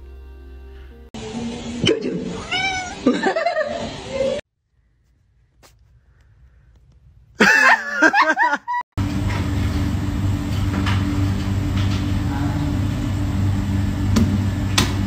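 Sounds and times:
low mechanical hum: 0.0 - 4.4, 9.0 - 15.0.

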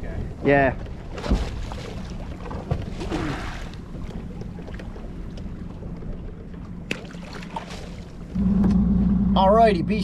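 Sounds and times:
choppy sea water: 0.0 - 9.1
boat motor humming: 3.8 - 10.0.

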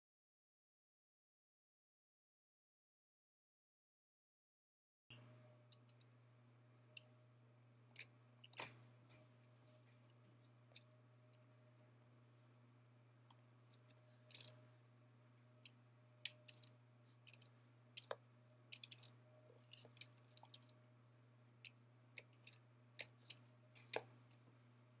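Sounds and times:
low steady hum: 5.1 - 25.0
plastic toy clicks and ticks: 15.6 - 20.7.

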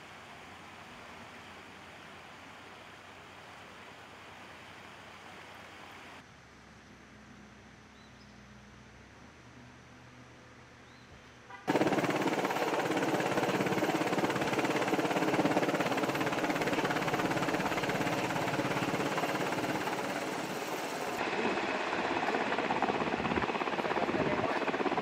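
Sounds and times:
helicopter rotor beating: 11.7 - 25.0.

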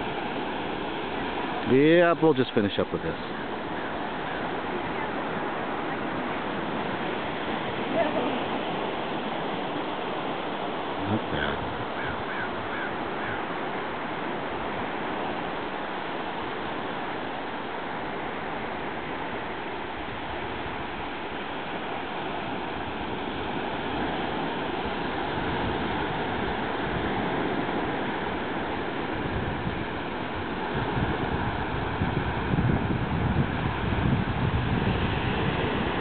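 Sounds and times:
waves breaking on beach: 0.0 - 36.0
wind buffeting microphone: 22.4 - 36.0.

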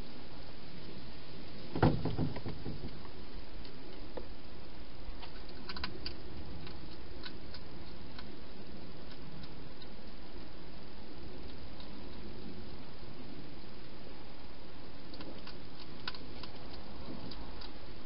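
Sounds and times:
steady hiss: 0.0 - 18.0
hedgehog eating clicks: 5.2 - 10.2, 15.0 - 18.0.

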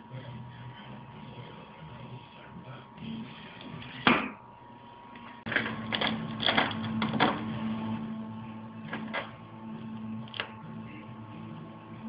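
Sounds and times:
cd drive humming: 0.0 - 12.0.

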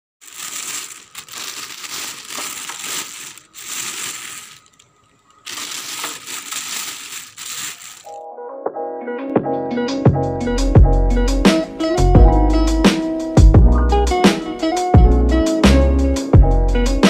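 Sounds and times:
plastic bag crinkling: 0.2 - 8.2.

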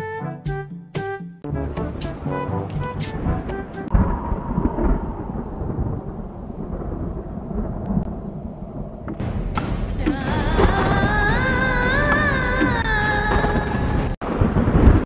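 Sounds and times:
music with held melody: 0.0 - 3.9
deep rumbling noise: 1.5 - 15.0.

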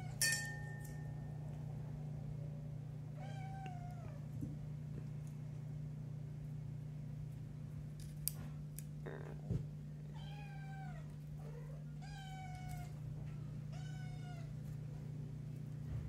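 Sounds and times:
low hum: 0.0 - 10.1.

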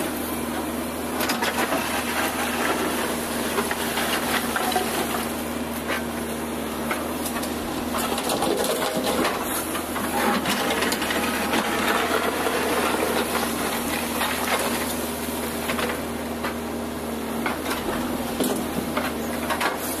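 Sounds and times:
diesel engine running: 0.0 - 20.0
bucket clanks and scrapes: 7.9 - 15.0.

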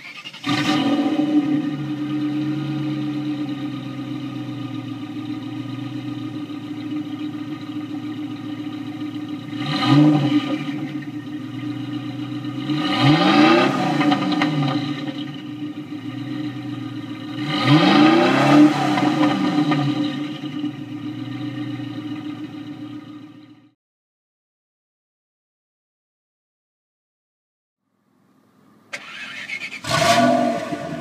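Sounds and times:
car exhaust idling and revving: 0.4 - 23.8, 29.8 - 31.0.

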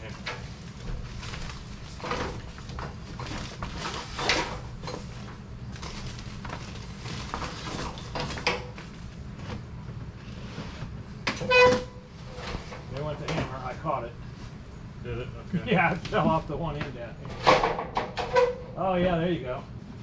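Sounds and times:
cable rustling: 0.0 - 10.9.

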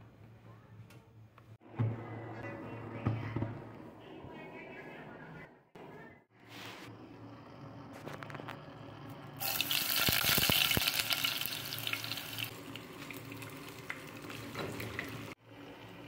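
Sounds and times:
oil sizzling in a pot: 9.4 - 16.0.

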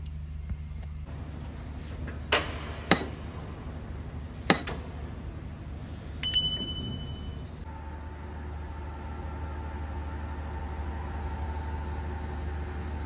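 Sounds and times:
steady low hum: 0.0 - 13.0
metal prop rod clink: 6.2 - 7.3.

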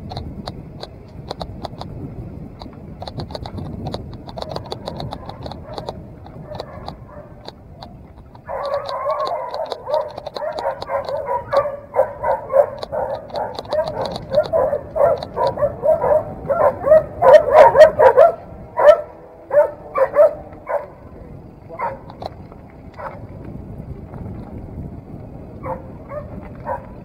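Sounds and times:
dog barking: 5.2 - 7.4, 8.4 - 21.0, 21.8 - 22.1, 23.0 - 23.2, 25.6 - 27.0.

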